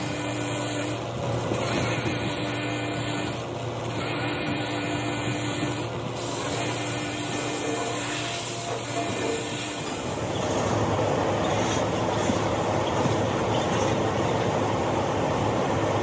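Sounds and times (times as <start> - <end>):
angle grinder buffing rubber: 0.0 - 10.4.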